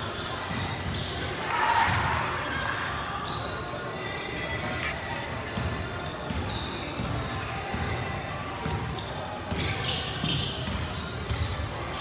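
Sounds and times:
shoe squeaks: 3.2s - 7.8s, 8.6s - 12.0s
basketball bouncing on court: 5.5s - 11.7s.

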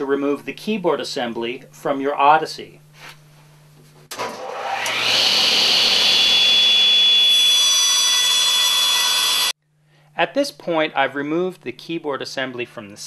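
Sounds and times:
table saw motor whine: 4.2s - 9.6s.

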